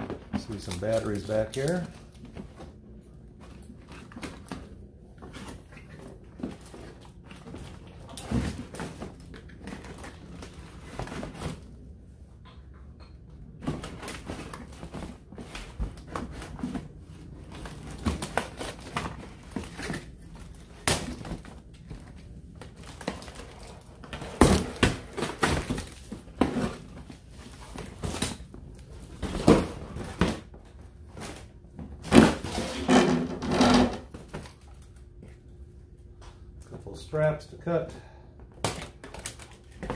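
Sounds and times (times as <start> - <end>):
cardboard scraping and rustling: 31.1 - 34.7.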